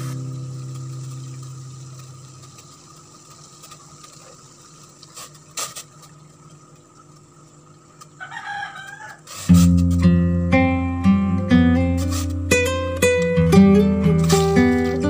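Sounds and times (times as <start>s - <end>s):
rooster crowing: 8.2s - 9.4s.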